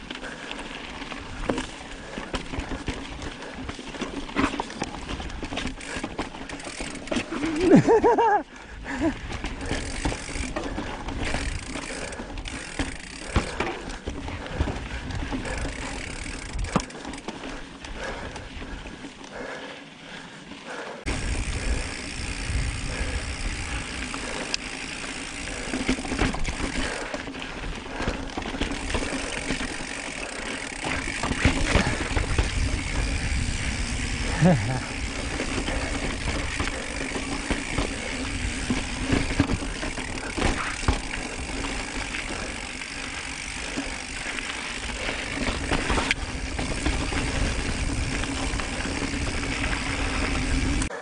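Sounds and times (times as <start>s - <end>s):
bike tyres rolling over rock: 0.0s - 19.3s, 21.1s - 51.0s
bike knocks and rattles: 1.2s - 8.4s, 9.0s - 17.5s, 21.1s - 50.9s
wind rumble on microphone: 21.1s - 23.9s.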